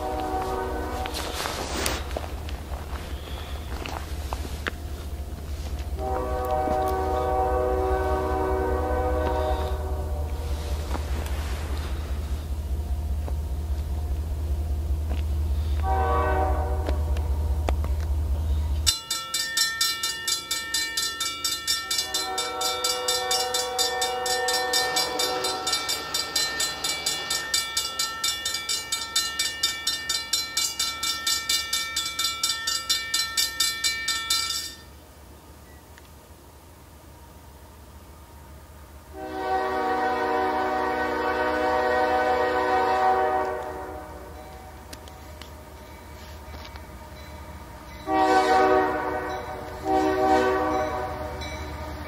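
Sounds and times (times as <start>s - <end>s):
locomotive horn: 0.0s - 2.1s, 5.9s - 11.0s, 15.6s - 17.5s, 21.8s - 26.3s, 39.1s - 52.0s
low rumble: 9.8s - 15.9s
crossing bell ringing: 18.5s - 35.0s, 41.7s - 52.0s.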